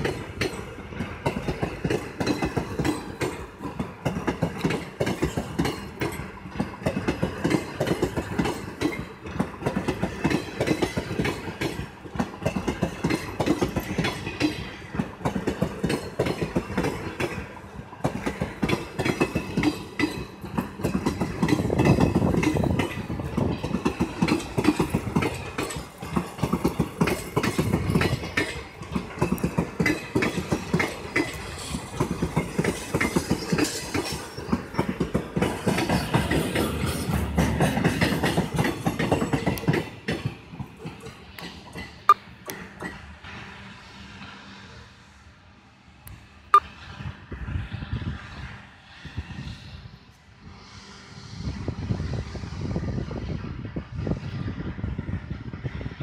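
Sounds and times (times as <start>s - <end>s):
train wheels clattering over rail joints: 0.0s - 44.4s.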